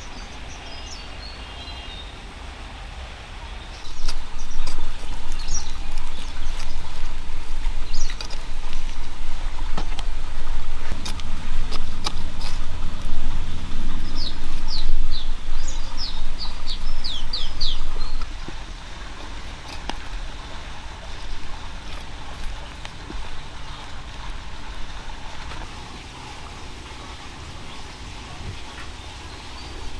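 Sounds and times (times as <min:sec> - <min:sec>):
small birds chirping: 0:00.0 - 0:02.3, 0:03.4 - 0:29.9
low rumble: 0:02.3 - 0:29.9
hand hoe digging dry soil: 0:03.9 - 0:25.8.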